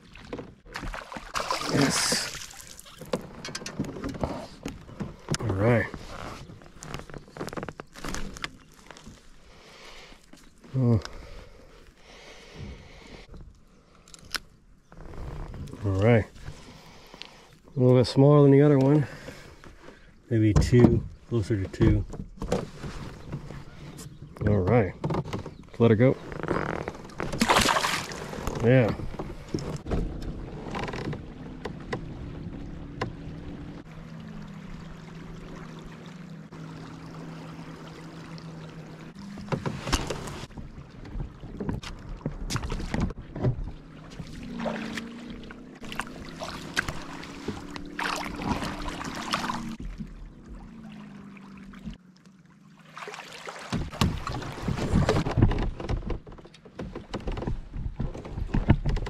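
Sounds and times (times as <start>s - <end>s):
water moving past hull: 0.0s - 59.0s
kayak knocks and scrapes: 0.1s - 9.2s, 19.2s - 32.2s, 39.1s - 45.1s, 53.7s - 59.0s.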